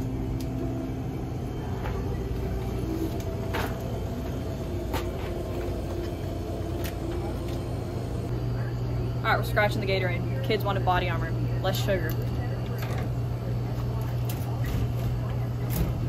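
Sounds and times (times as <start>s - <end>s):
store ambience hum: 0.0s - 16.0s.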